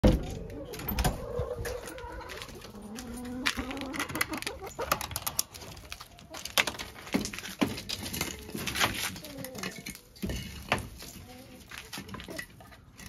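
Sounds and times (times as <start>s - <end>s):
hens clucking: 0.0s - 10.2s.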